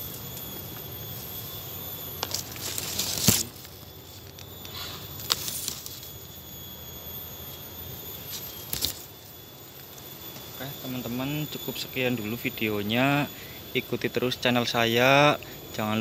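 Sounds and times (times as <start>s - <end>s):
bamboo leaves crackling and rustling: 0.0s - 12.6s
bamboo stem snapping: 2.2s - 6.1s, 8.4s - 9.1s.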